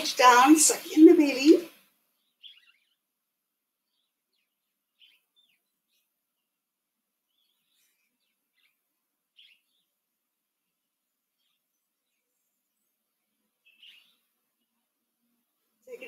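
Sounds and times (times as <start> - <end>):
small birds chirping faintly: 0.0 - 16.0.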